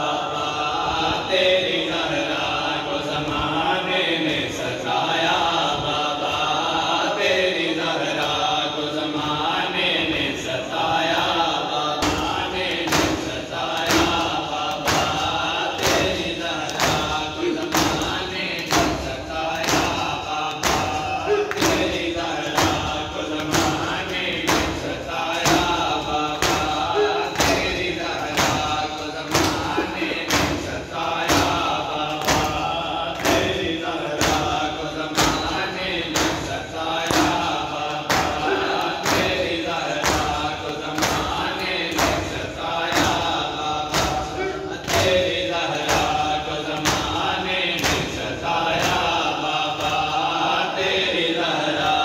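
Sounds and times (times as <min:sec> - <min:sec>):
men chanting: 0:00.0 - 0:52.0.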